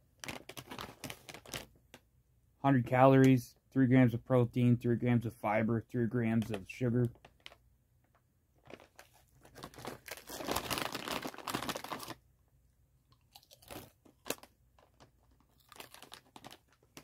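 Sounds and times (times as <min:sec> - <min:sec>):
chip bag rustling: 0:00.2 - 0:01.7, 0:08.6 - 0:12.2, 0:13.4 - 0:17.0
chips crunching while chewing: 0:13.1 - 0:17.0.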